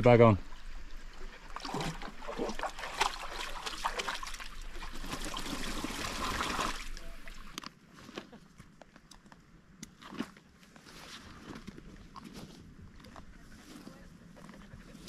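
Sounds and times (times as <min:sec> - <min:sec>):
dog splashing in water: 0:01.5 - 0:07.5.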